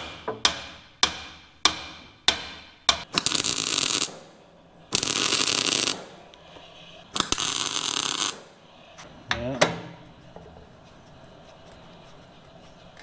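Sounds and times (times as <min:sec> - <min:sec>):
hammer striking steel bar: 0:00.0 - 0:03.1
welding crackle: 0:03.1 - 0:06.4, 0:07.1 - 0:08.6.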